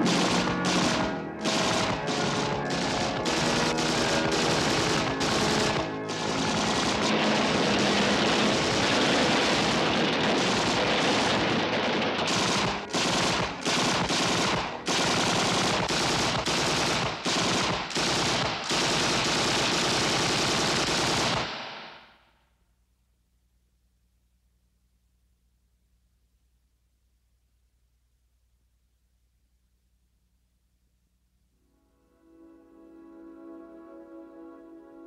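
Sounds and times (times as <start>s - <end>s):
machine-gun fire: 0.0s - 22.2s.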